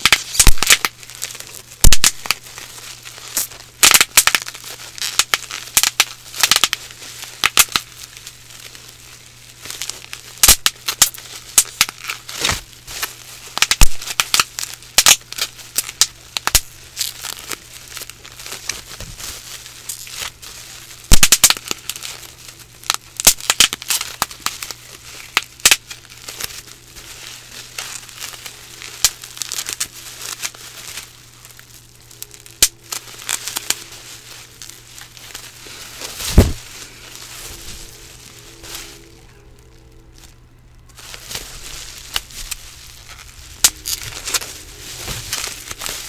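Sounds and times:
bubble wrap popping: 0.0 - 46.0
plastic sheet crinkling: 0.0 - 46.0.

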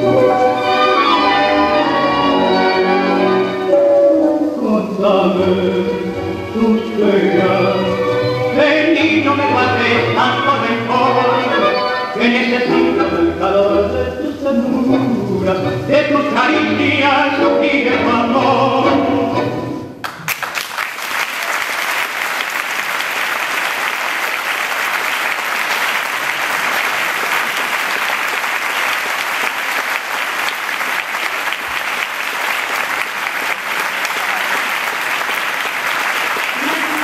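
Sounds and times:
tango song with singer: 0.0 - 20.1, 36.4 - 37.0
audience applauding: 20.0 - 37.0.

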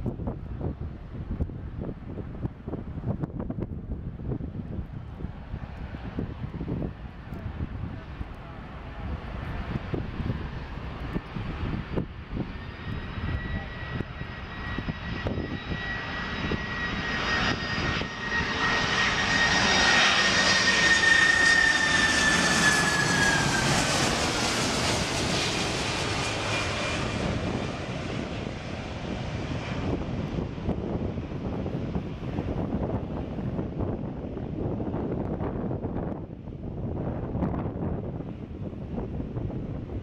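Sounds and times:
jet engines whining overhead: 0.0 - 40.0.

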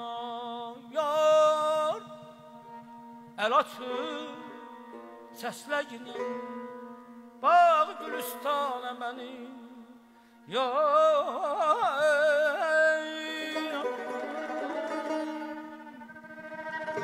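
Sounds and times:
man singing with trills: 0.0 - 17.0.

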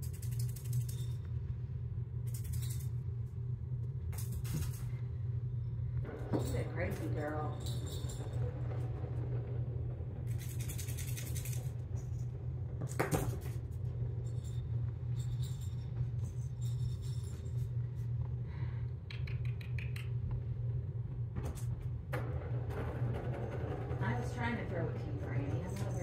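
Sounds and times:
low room hum: 0.0 - 26.0
quick rattle: 7.5 - 13.8.

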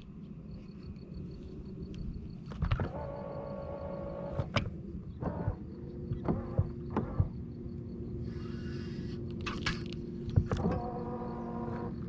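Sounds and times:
small electric motor whining: 10.4 - 12.0.

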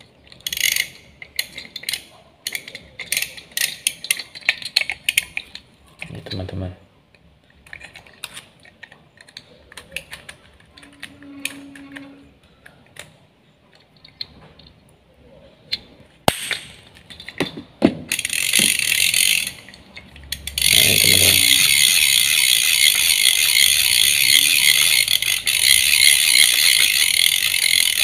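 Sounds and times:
fishing reel ratchet clicking: 0.4 - 4.2, 18.1 - 28.0.

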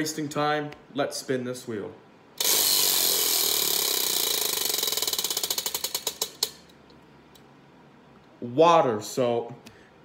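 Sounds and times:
prize wheel ticking: 2.4 - 6.5.

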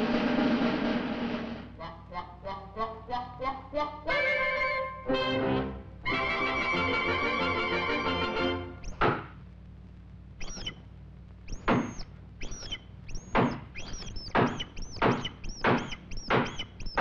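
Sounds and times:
cartoon axe thunking into wood: 9.0 - 9.3, 11.7 - 12.0.

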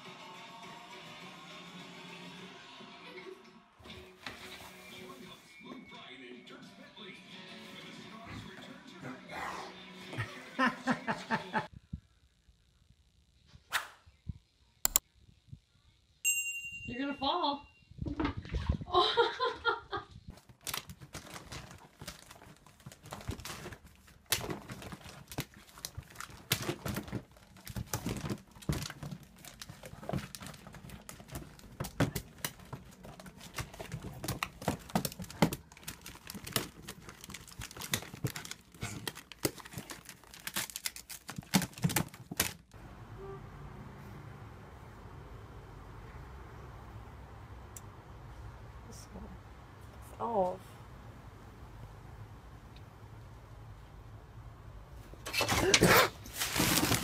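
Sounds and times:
plastic bags crinkling: 20.3 - 42.8, 56.2 - 57.0.

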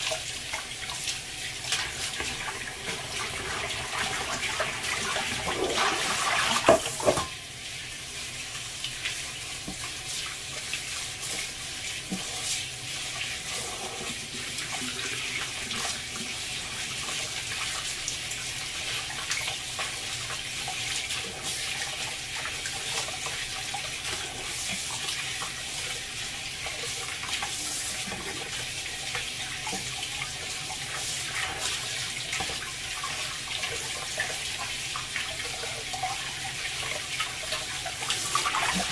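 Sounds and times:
tap water splashing into bowl: 5.4 - 7.4.

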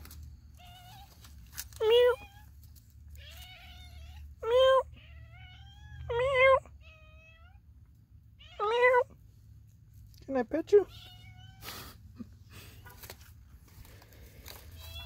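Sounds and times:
cat meowing: 1.8 - 2.5, 3.1 - 7.6, 8.4 - 9.2, 10.9 - 11.7, 14.8 - 15.0.

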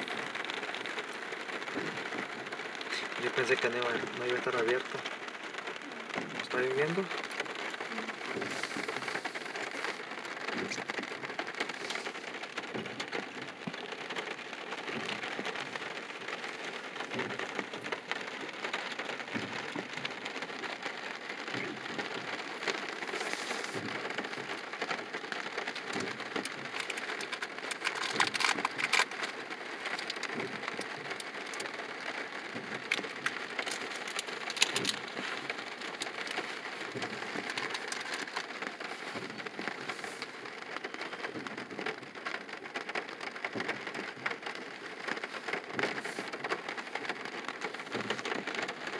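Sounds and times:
rain pattering on car roof: 0.0 - 48.9.

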